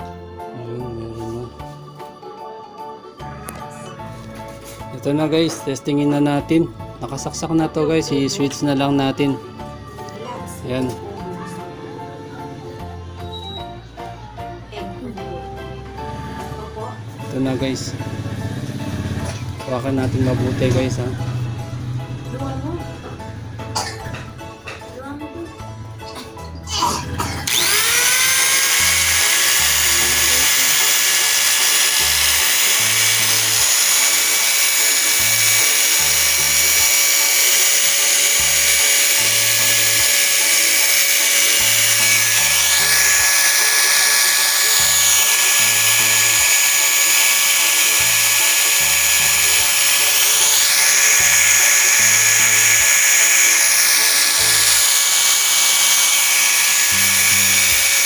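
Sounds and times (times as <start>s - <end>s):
angle grinder spinning: 27.4s - 58.0s.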